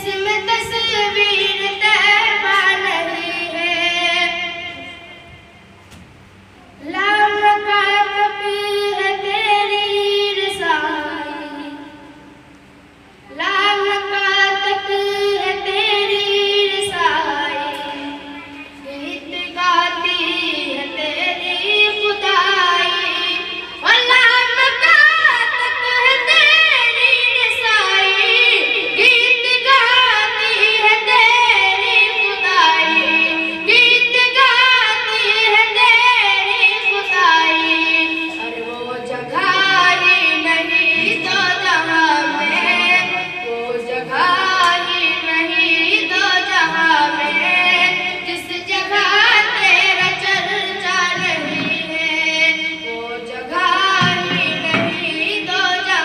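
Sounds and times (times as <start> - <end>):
boy singing into microphone: 0.0 - 5.5, 6.5 - 12.4, 13.1 - 56.0.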